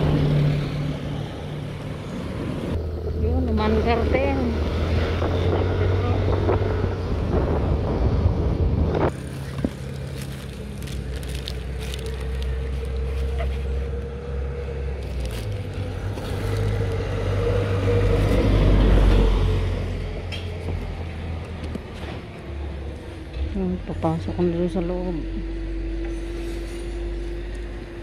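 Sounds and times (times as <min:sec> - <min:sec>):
plastic parcel rustling: 0:09.1 - 0:14.0, 0:14.9 - 0:17.0.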